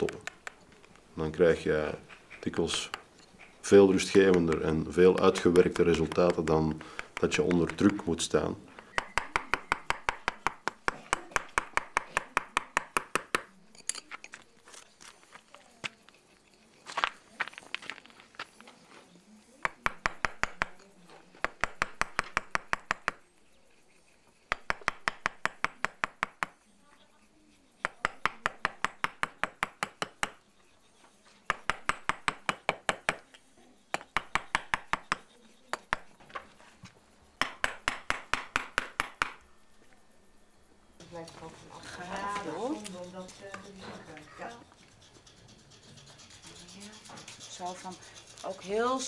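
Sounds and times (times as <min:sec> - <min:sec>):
hammer striking chisel on stone: 0:03.7 - 0:14.2, 0:19.6 - 0:23.2, 0:24.5 - 0:26.6, 0:27.8 - 0:30.5, 0:31.4 - 0:36.4, 0:37.4 - 0:39.4.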